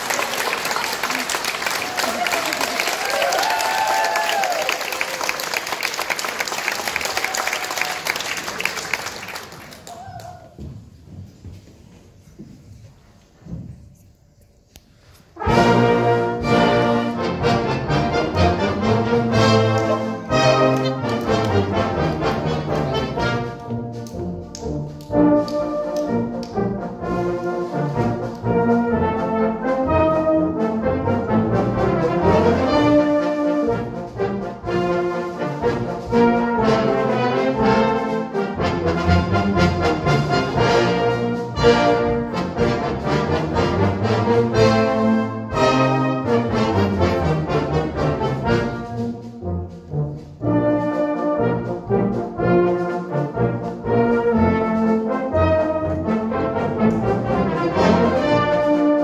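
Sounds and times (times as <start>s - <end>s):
brass band playing: 15.2s - 59.0s.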